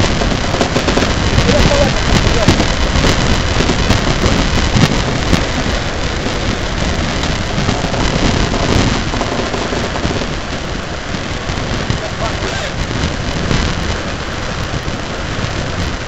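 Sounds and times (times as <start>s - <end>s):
water rushing along hull: 0.0s - 16.0s
wind on microphone: 0.0s - 16.0s.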